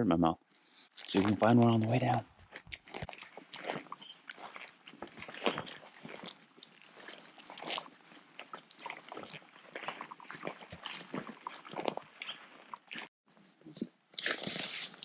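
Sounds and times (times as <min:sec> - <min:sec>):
footsteps crunching on rough ground: 0:01.0 - 0:13.1.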